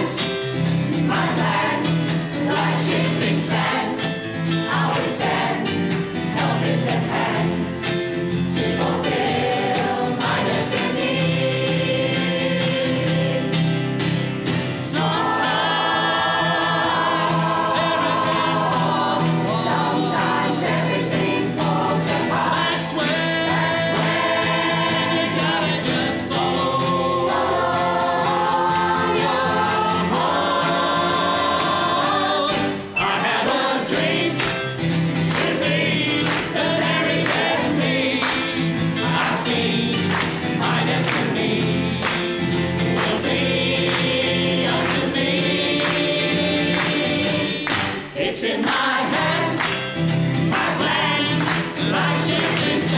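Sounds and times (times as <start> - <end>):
choir singing in harmony: 0.0 - 52.9
keyboard accompaniment: 0.0 - 52.9
people clapping in time: 34.2 - 52.9.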